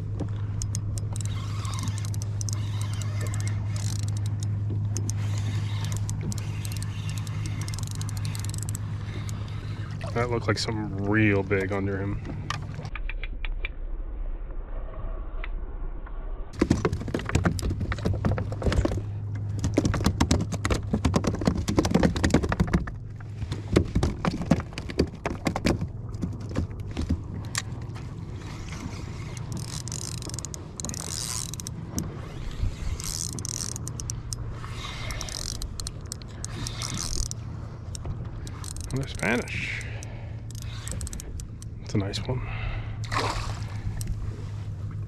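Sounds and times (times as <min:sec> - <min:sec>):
low hum: 0:00.0 - 0:21.5, 0:22.3 - 0:45.0
fishing reel clicking and rattling: 0:00.5 - 0:10.0, 0:28.4 - 0:41.9.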